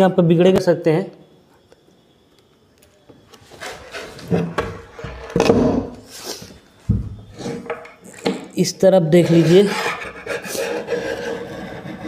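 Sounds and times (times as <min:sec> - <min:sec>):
rubbing along drawer edge: 0:09.2 - 0:12.0.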